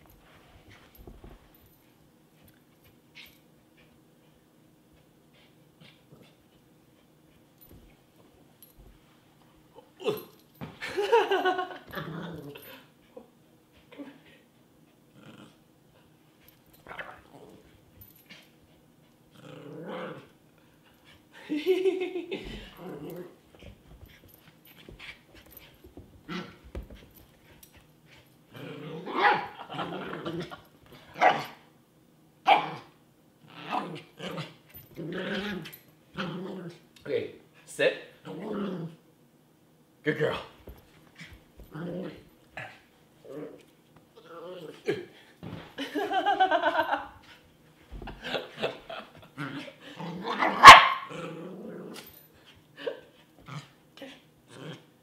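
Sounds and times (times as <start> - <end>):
puppy growling: 15.1 - 15.6, 19.3 - 20.3, 28.5 - 30.6, 33.5 - 36.8, 38.3 - 39.0, 41.6 - 43.6, 49.3 - 52.2
puppy barking: 50.4 - 51.1.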